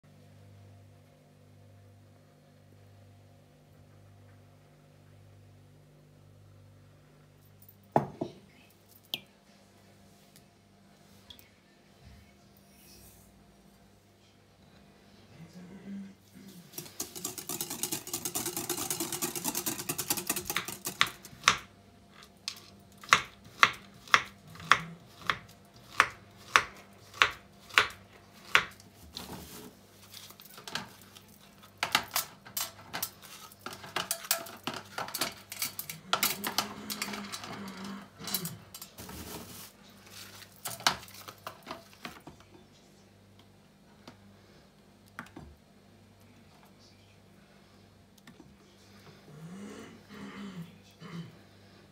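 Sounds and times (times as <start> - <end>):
whisk beating in glass bowl: 16.7 - 21.2.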